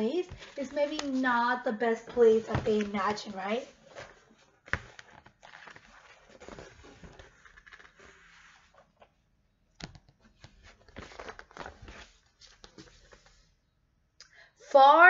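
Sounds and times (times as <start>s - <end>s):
book pages turning: 0.0s - 1.4s, 2.1s - 9.2s, 9.8s - 13.5s
book handling clicks and knocks: 2.1s - 3.3s, 3.9s - 9.2s, 9.8s - 13.3s.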